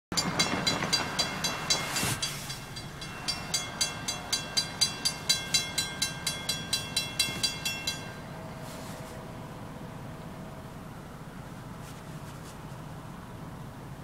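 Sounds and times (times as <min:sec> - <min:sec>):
crossing bell ringing rapidly: 0:00.1 - 0:08.6.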